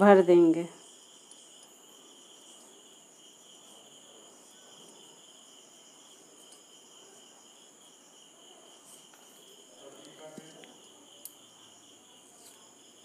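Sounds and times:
high-pitched insect trilling: 0.0 - 13.0.

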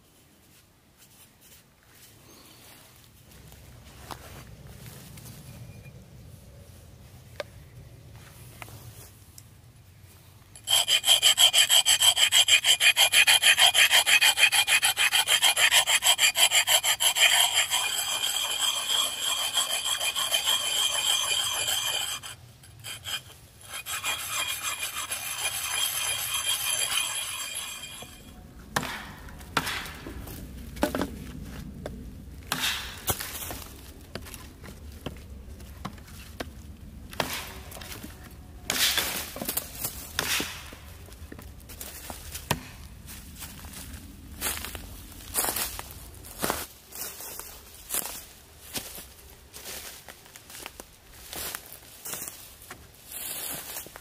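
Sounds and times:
hand saw cutting wood: 10.6 - 28.3.

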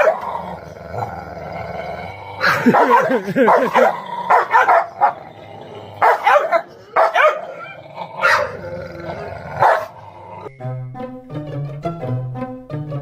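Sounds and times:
dogs barking: 0.0 - 1.5, 2.3 - 10.5
dog growling: 0.0 - 10.5.

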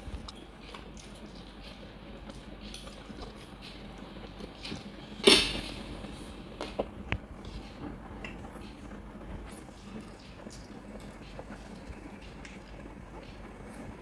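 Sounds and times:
loud dish clatter: 5.2 - 5.9.

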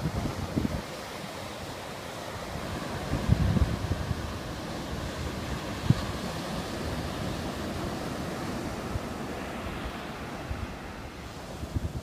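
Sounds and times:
ocean surf breaking on beach: 0.0 - 12.0
wind buffeting microphone: 0.0 - 12.0.

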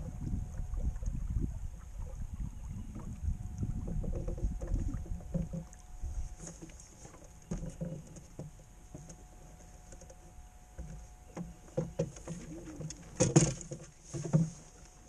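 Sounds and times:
sail clattering and rustling: 3.7 - 15.0
knocks in wooden boat: 3.8 - 5.8, 6.4 - 9.2, 10.8 - 14.6.

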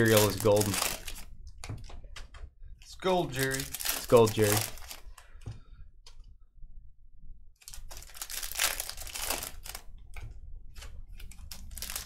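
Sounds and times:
wrapper crinkling and tearing: 0.0 - 1.3, 3.2 - 5.1, 7.6 - 9.9, 11.1 - 12.0.

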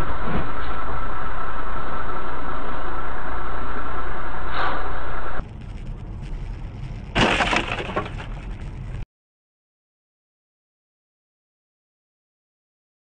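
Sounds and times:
vehicle noise: 0.0 - 9.0
car collision crunching impact: 6.8 - 8.9.

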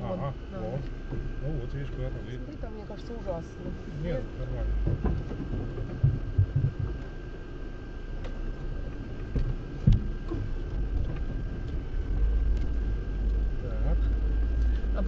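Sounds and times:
car engine and road rumble: 0.0 - 15.0
thumps from bumps: 4.8 - 7.2.

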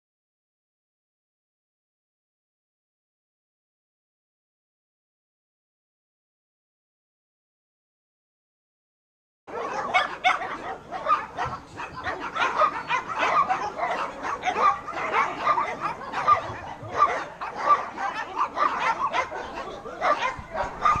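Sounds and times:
dogs barking and yipping: 9.5 - 21.0.

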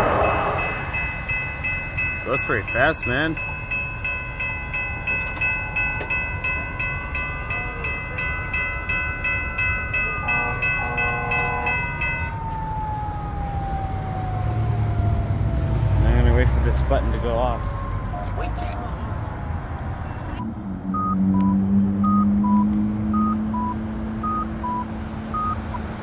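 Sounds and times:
train rumbling past: 0.0 - 12.2
crossing bell ringing rapidly: 0.0 - 12.3.

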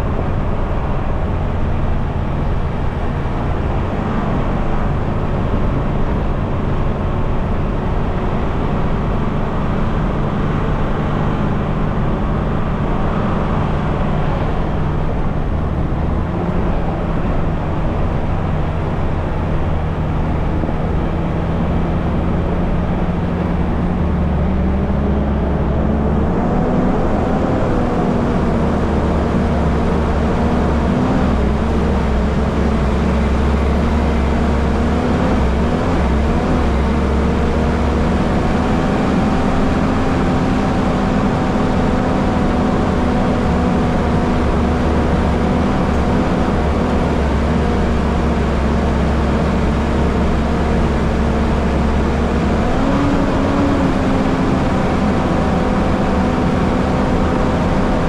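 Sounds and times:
car engine running: 0.0 - 58.0
tyres and road noise: 0.0 - 58.0.

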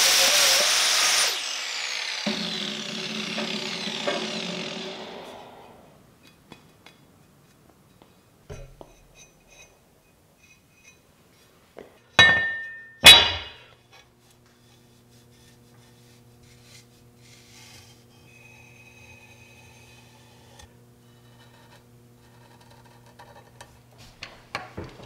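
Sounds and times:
ringing metallic clink: 12.2 - 13.4.

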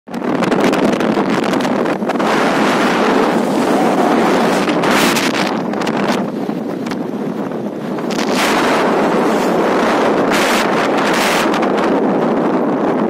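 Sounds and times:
wind buffeting microphone: 0.1 - 13.0.

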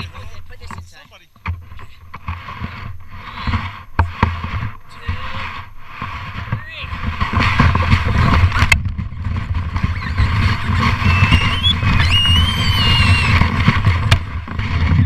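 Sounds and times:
sharp knocks from bumps: 0.6 - 15.0
plastic sled scraping over snow: 2.2 - 15.0
child squealing: 9.9 - 13.4.

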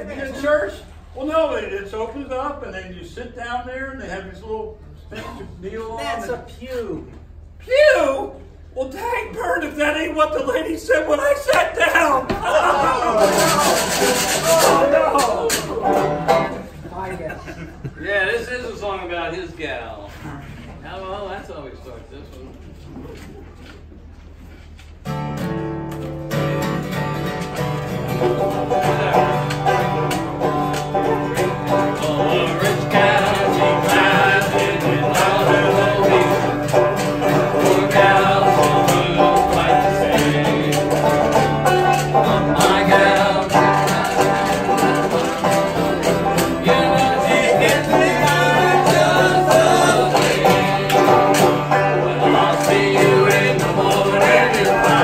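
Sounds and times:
acoustic guitar: 0.0 - 17.8, 23.0 - 55.0
banjo: 11.9 - 17.1, 25.1 - 55.0
men singing: 12.2 - 16.1, 28.2 - 55.0.

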